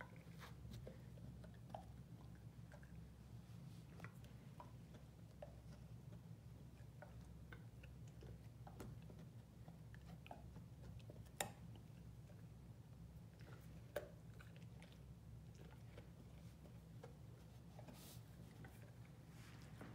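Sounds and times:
low steady hum: 0.0s - 19.9s
dog crunching a carrot: 3.9s - 19.2s.

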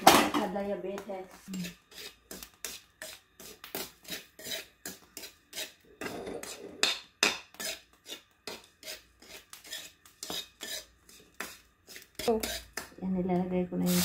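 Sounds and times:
metal spatula scraping wok: 1.5s - 6.9s, 7.5s - 12.8s.

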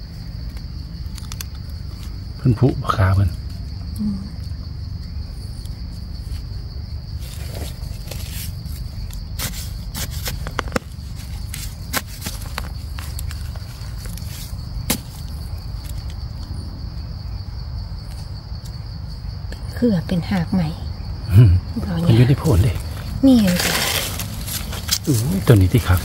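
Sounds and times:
insects droning: 0.0s - 26.0s
twigs snapping: 0.5s - 2.2s, 7.3s - 16.5s, 22.8s - 26.0s
footsteps crunching through leaves: 22.6s - 26.0s.

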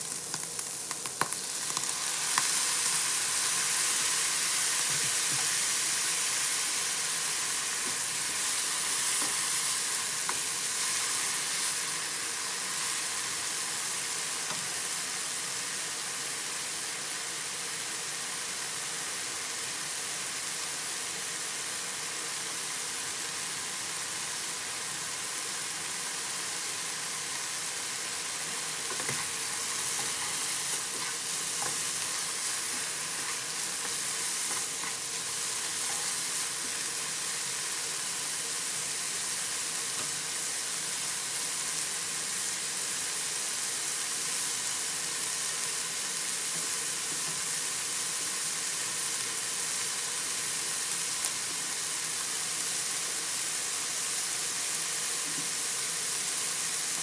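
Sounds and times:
meat and onion sizzling in a pan: 0.0s - 57.0s.

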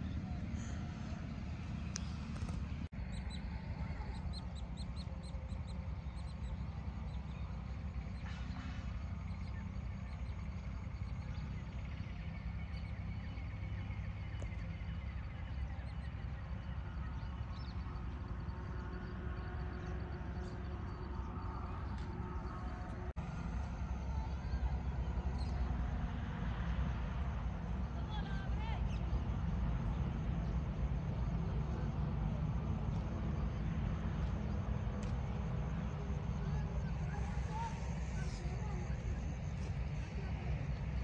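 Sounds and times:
small birds chirping: 0.0s - 23.2s
low outdoor rumble: 0.0s - 41.0s.

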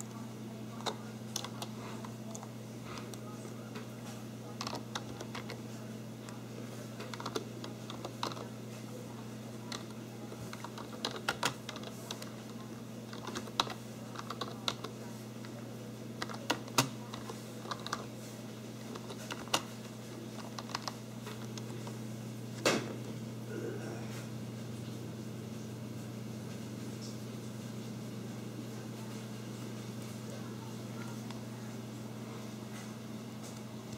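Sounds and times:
steady low hum: 0.0s - 33.9s
keyboard typing clicks: 10.5s - 14.9s.

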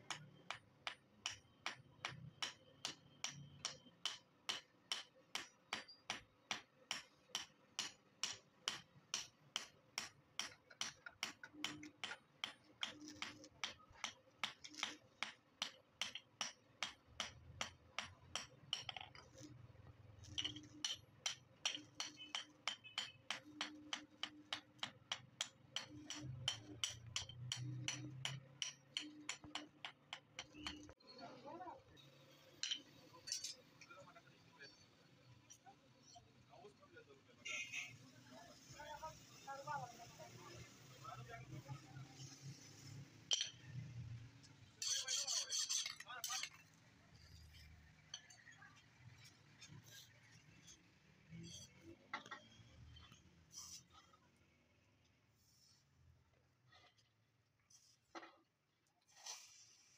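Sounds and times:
hammer beating on steel anvil: 0.0s - 19.0s, 20.4s - 30.9s.

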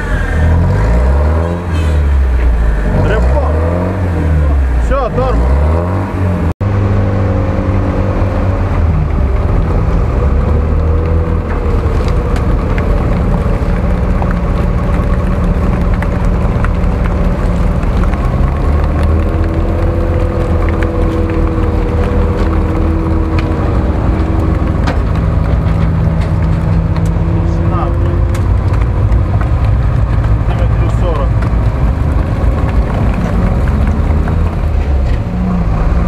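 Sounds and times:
truck engine revving under load: 0.0s - 36.0s.

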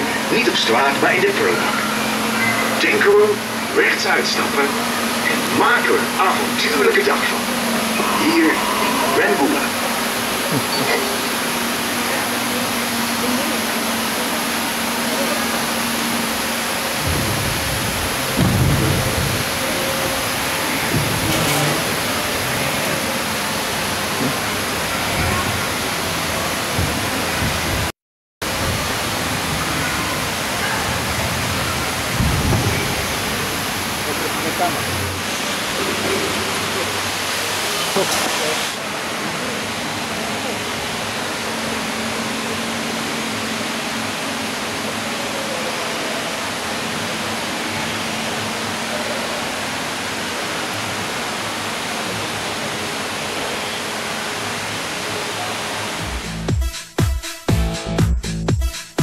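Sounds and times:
rushing splashing water: 0.0s - 56.3s
deep thudding music: 17.0s - 21.4s.

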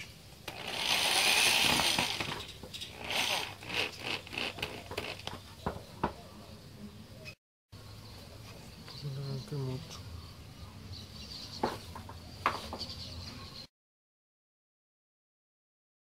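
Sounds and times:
electric drill boring through plastic: 0.4s - 5.4s.

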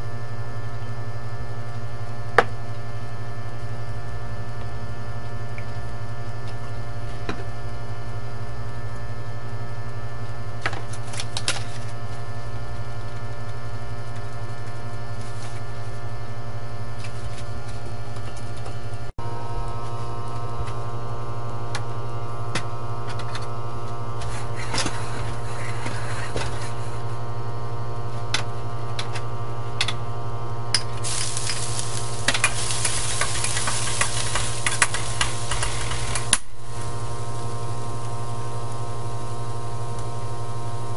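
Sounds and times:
mechanical hum: 0.0s - 40.9s
ginger sizzling in hot oil: 31.0s - 40.9s.

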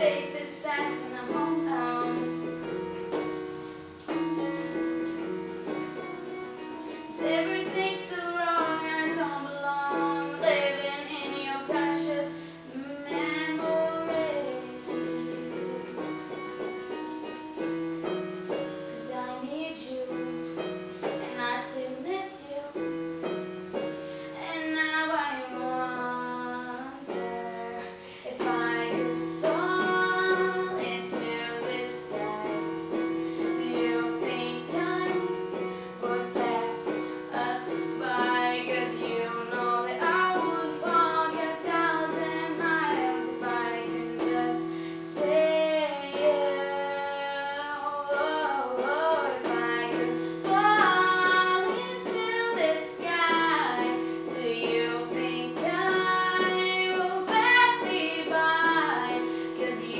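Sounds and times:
woman singing: 0.0s - 3.3s, 6.9s - 16.5s, 18.0s - 59.9s
electronic keyboard piano parts: 0.0s - 59.9s.

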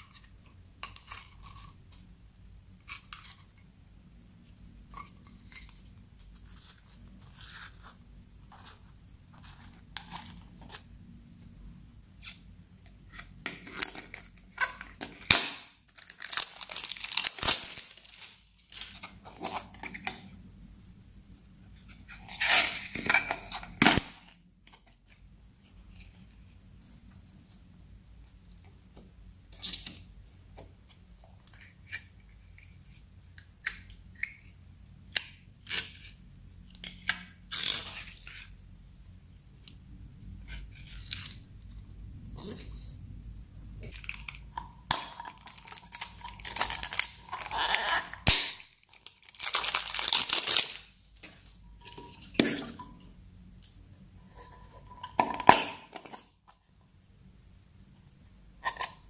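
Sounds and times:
plastic cups crinkling and crackling: 4.4s - 11.5s, 12.2s - 20.5s, 40.5s - 43.0s, 43.8s - 56.7s.

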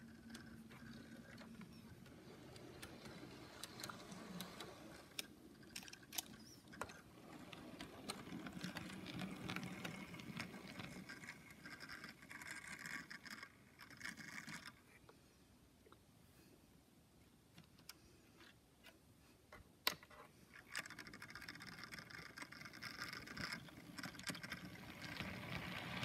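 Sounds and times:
model train clicks: 1.4s - 14.8s, 20.6s - 26.0s
model train rumbling: 22.7s - 26.0s.

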